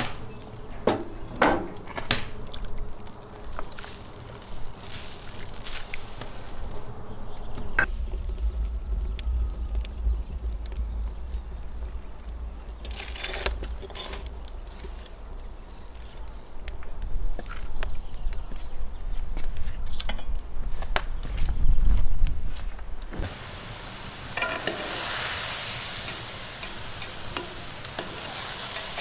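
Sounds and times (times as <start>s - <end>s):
wood fire crackling: 0.0s - 29.0s
fire rushing surge: 7.8s - 15.0s.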